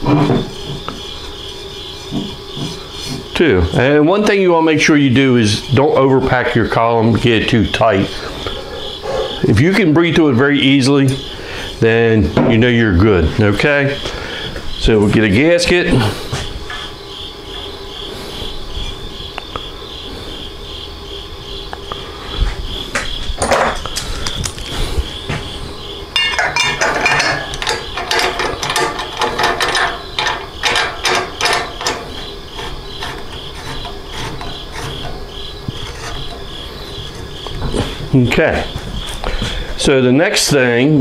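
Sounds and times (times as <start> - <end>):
high pulsing chirp: 0.0 - 40.9
metal parts clicking and rattling: 26.1 - 37.8
metal knocks: 26.1 - 38.0.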